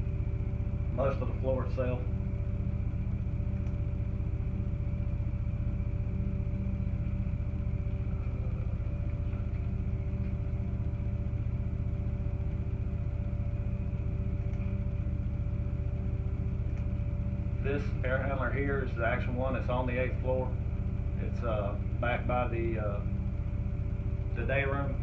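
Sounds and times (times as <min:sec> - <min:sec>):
ventilation hum: 0:00.0 - 0:25.0.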